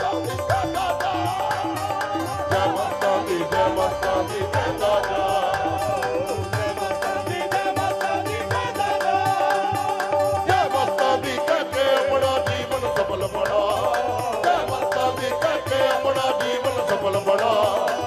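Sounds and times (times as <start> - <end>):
tabla fast steady beat: 0.0 - 18.0
wavering melody line: 0.0 - 18.0.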